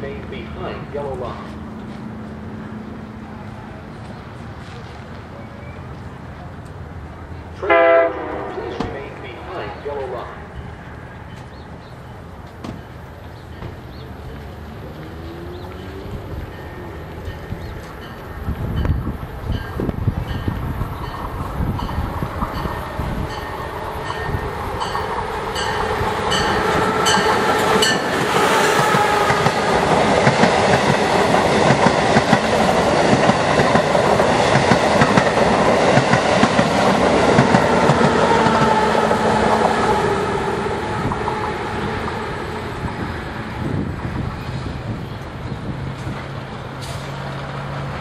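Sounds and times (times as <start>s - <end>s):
high-speed train passing: 0.0s - 48.0s
high clicks of train wheels: 26.6s - 38.8s.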